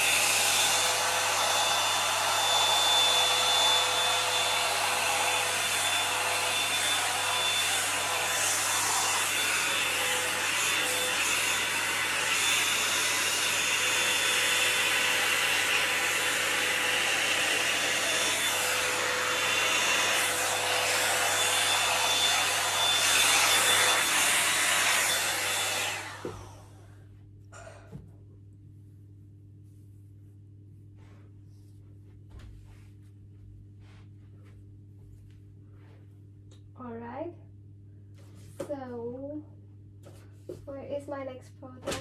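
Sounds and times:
hot-air brush running: 0.0s - 27.0s.

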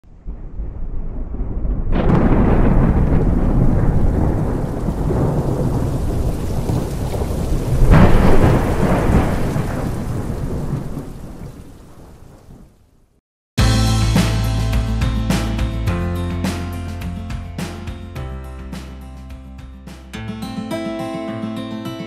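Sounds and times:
thunder rumbling: 0.0s - 12.9s
thunderclap: 0.0s - 12.9s
heavy rain: 0.1s - 13.0s.

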